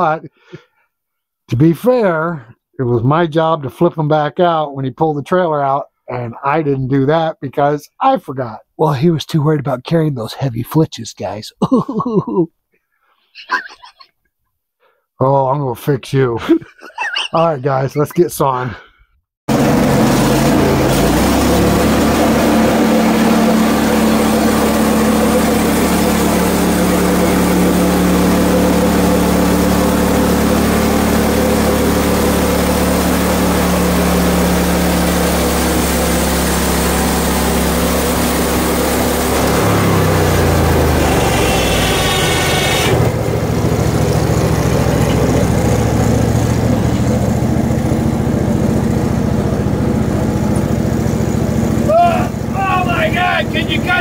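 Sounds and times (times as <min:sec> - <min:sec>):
sawmill engine running: 0:19.5 - 0:54.0
band blade cutting log: 0:39.4 - 0:43.1.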